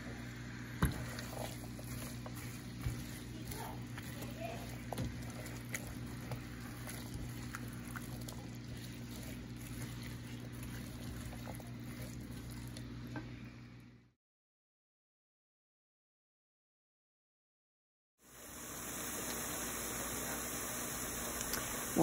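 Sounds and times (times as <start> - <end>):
steady low hum: 0.0 - 14.1
onions sizzling in oil: 18.2 - 22.0.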